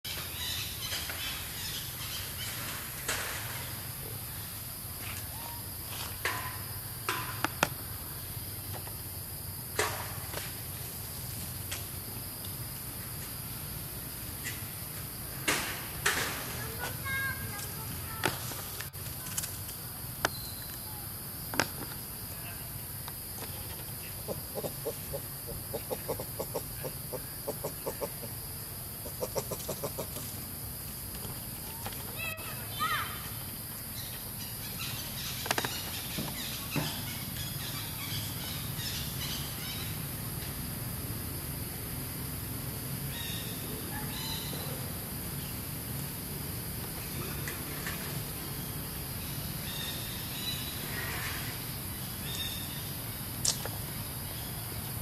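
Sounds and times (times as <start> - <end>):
insect chorus buzzing: 0.1 - 55.0
macaque clucking calls: 24.1 - 28.4, 29.0 - 30.2.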